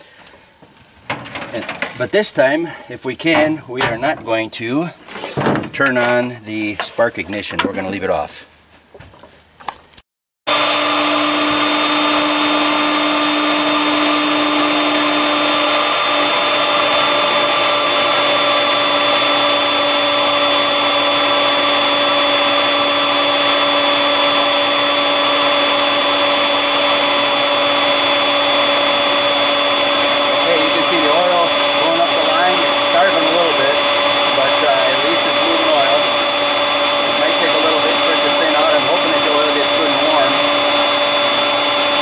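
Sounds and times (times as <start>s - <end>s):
motor blower whining: 10.5s - 42.0s.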